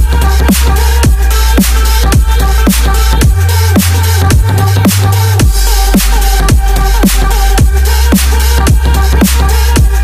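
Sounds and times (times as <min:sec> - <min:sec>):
electronic dance music: 0:00.0 - 0:10.0
heavy bass line: 0:00.0 - 0:10.0
punchy kick drum: 0:02.1 - 0:02.4, 0:03.2 - 0:03.4, 0:04.3 - 0:07.8, 0:08.7 - 0:08.9, 0:09.8 - 0:10.0.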